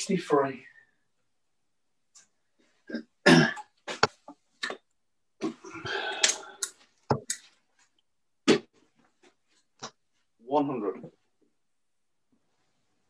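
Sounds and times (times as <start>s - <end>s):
cough-like burst: 2.9s - 3.7s.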